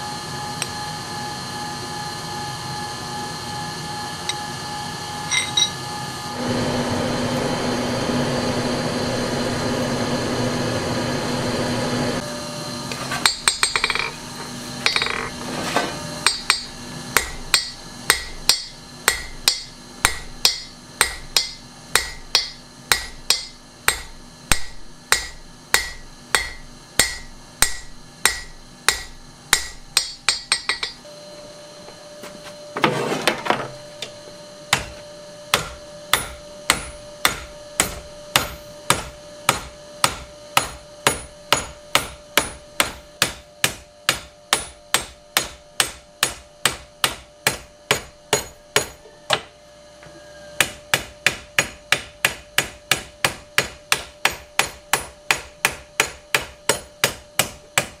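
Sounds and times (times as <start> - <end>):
hammer striking steel on anvil: 5.3 - 5.8, 13.2 - 14.2, 14.8 - 15.3, 16.2 - 31.0, 34.0 - 49.5, 50.6 - 58.0.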